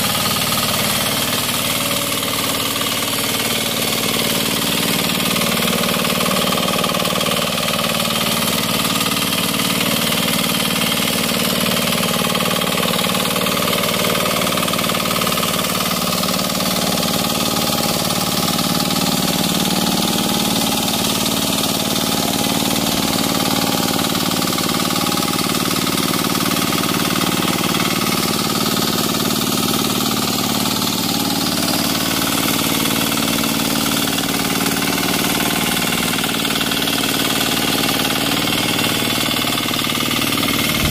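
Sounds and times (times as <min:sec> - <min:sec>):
small engine running steadily: 0:00.0 - 0:40.9.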